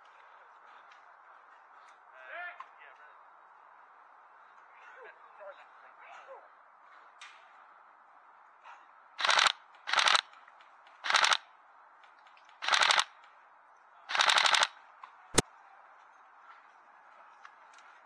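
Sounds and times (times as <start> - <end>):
airsoft rifle bursts: 9.2 - 10.2, 11.0 - 11.4, 12.6 - 13.1, 14.1 - 14.7.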